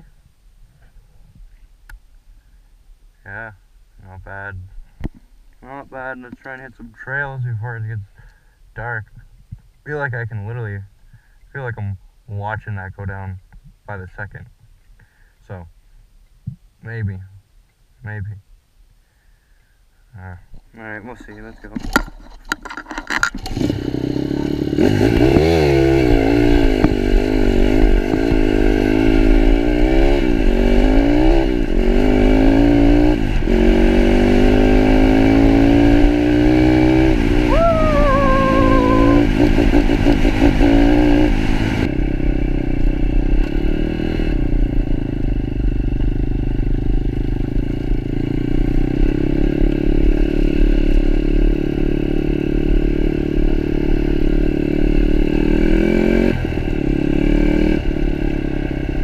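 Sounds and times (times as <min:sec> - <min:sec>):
motorbike engine revving: 0:23.4 - 0:41.9.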